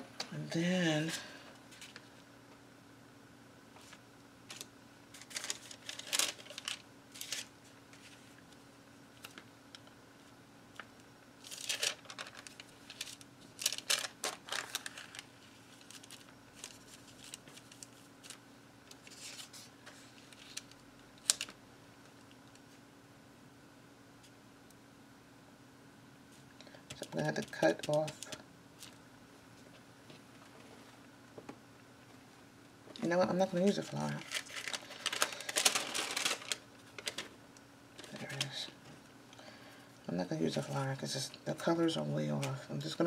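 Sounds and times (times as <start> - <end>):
faint steady hum: 0.0 - 43.0
paper rustling and crinkling: 1.7 - 2.2, 3.8 - 8.6, 9.2 - 21.6, 33.6 - 37.4.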